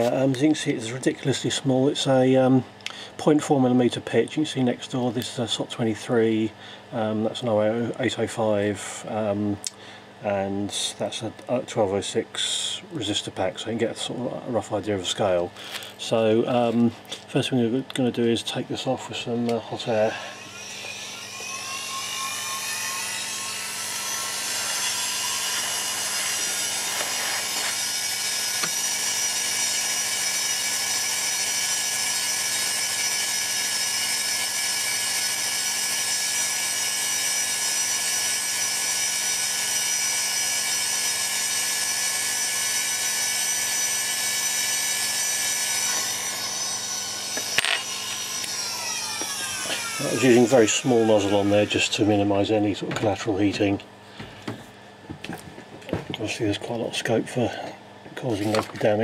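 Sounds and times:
hot-air blower rushing and whining: 0.0s - 2.1s, 19.3s - 54.7s.

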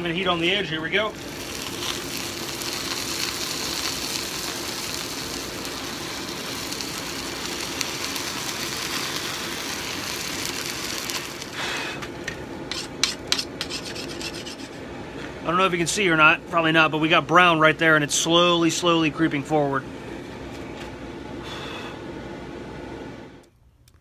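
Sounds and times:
oil flare-up hissing: 0.1s - 14.3s
hot metal sizzling in oil: 1.0s - 11.8s, 12.7s - 14.7s.

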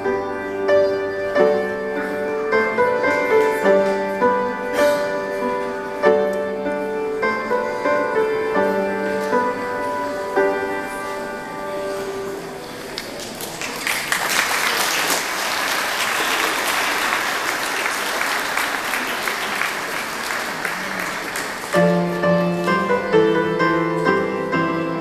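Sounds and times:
audience applause: 12.8s - 22.1s.

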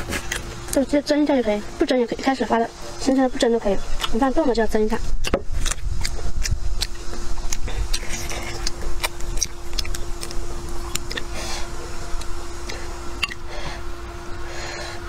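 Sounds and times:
chewing: 0.0s - 0.9s, 3.9s - 4.6s, 5.2s - 13.4s
steady hum: 0.0s - 15.0s.

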